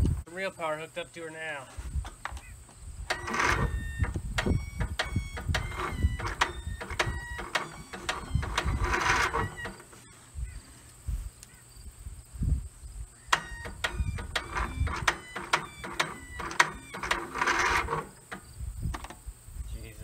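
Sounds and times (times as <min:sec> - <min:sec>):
starter clicks: 0:03.1 - 0:10.0, 0:13.3 - 0:19.2
starter cranking engine: 0:03.1 - 0:10.0, 0:13.3 - 0:19.1.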